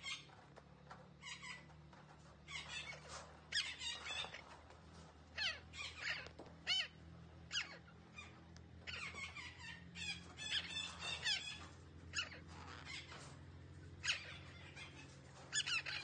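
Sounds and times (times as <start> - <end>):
parakeet squawking calls: 1.2 - 1.7, 2.5 - 4.5, 5.3 - 13.3, 14.0 - 16.0.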